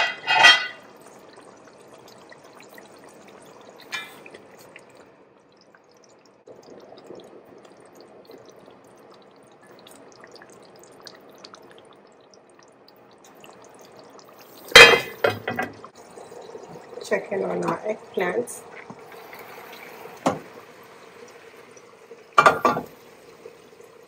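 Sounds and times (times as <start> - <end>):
metal cookware clanging: 0.0 - 0.8, 14.7 - 15.8
pot simmering: 0.0 - 24.0.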